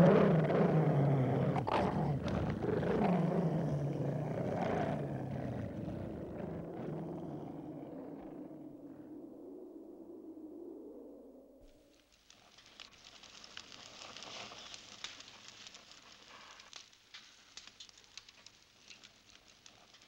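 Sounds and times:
beast growling roars: 0.0 - 9.2.

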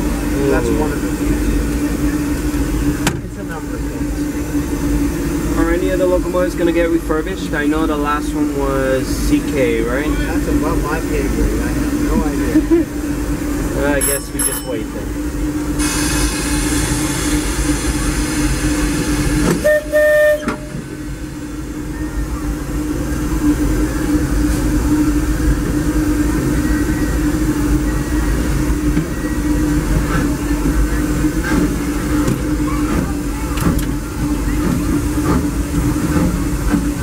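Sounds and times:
steam locomotive hum and hiss: 0.0 - 37.0
train whistle toot: 19.6 - 20.8.

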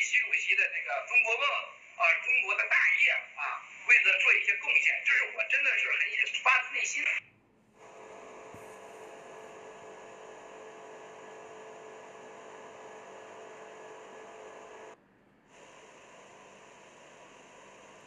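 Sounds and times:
faint hum: 7.2 - 18.0.

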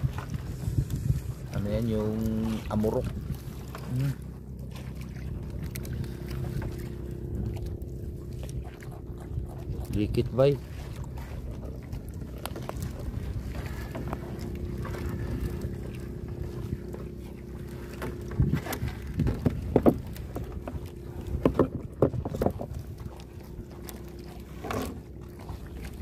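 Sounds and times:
steady low hum: 0.0 - 26.0
water noise: 0.0 - 26.0
wind: 0.0 - 26.0
sharp knocks and thuds: 21.4 - 22.7.

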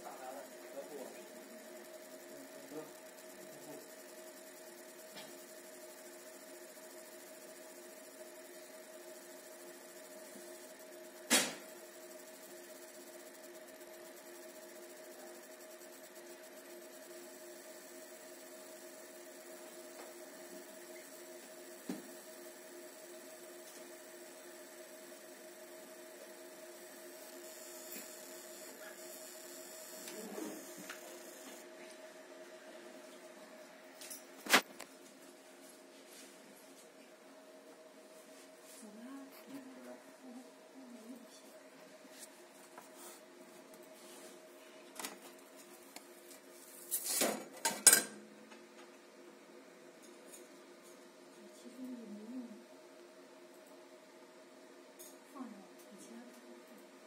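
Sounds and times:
laser marking machine humming: 0.0 - 35.0, 37.9 - 47.0.

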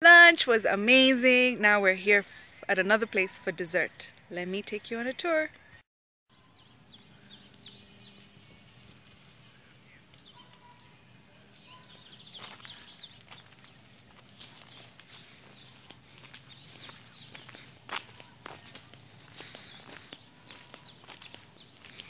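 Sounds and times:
small birds chirping: 1.4 - 22.0
footsteps on dirt road: 7.2 - 11.0, 11.6 - 22.0.

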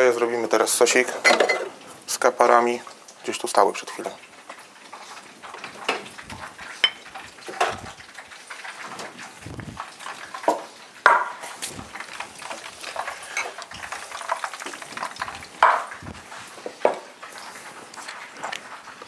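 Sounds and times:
fish frying in hot fat: 0.0 - 19.0
glass jars clattering on wooden board: 6.8 - 7.8, 15.6 - 16.0.

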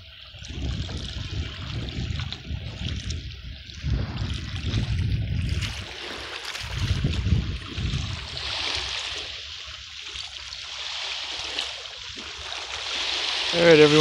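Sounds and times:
small waves lapping: 0.0 - 14.0
water washing on pebble beach: 0.0 - 14.0
wind gusting on microphone: 0.3 - 9.5.

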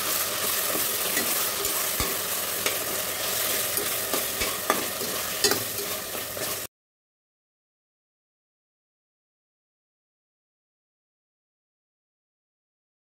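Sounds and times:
ladle scraping a pot: 0.0 - 6.7
paste sizzling in hot oil: 0.0 - 6.7
ladle clicking against pot: 1.1 - 2.9, 3.7 - 6.0.

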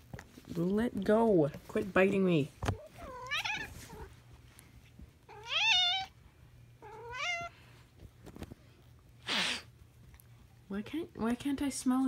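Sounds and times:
cat meowing: 2.7 - 4.1, 5.3 - 6.2, 6.8 - 7.6.

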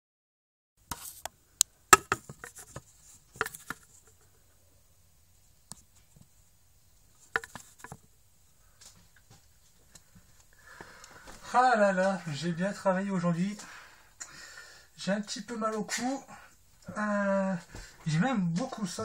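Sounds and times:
handling taps clicks and rustles: 2.0 - 4.3, 7.2 - 8.0.

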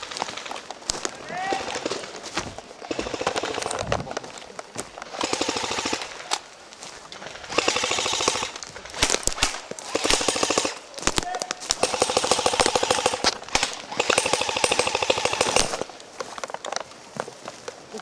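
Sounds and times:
airsoft gun bursts: 5.2 - 6.1, 7.5 - 8.6, 9.4 - 10.8, 11.8 - 15.9.

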